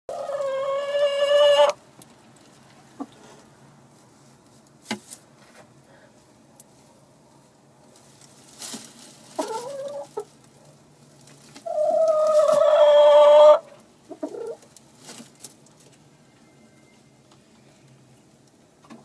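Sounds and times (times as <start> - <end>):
hen calling: 0.1 - 1.8, 11.6 - 14.6.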